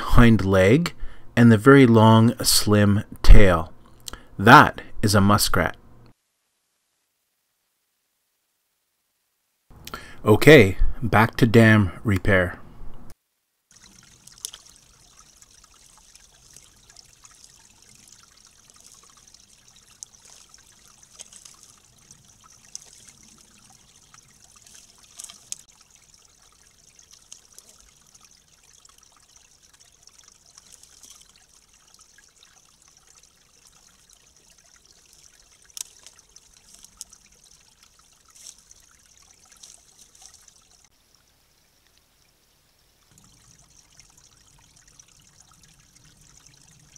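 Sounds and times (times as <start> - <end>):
water trickling: 13.7 - 46.9.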